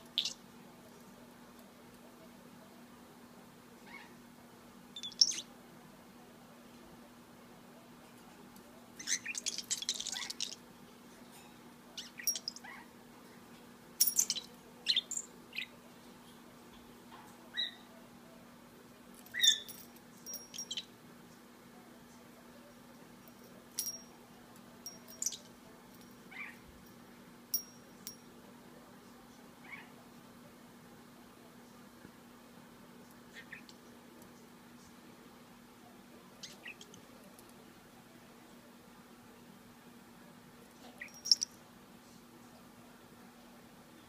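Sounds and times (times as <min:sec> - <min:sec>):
faint steady hum: 0:00.0 - 0:44.0
budgie chirping and clicking: 0:00.1 - 0:00.4, 0:05.0 - 0:05.4, 0:09.0 - 0:10.6.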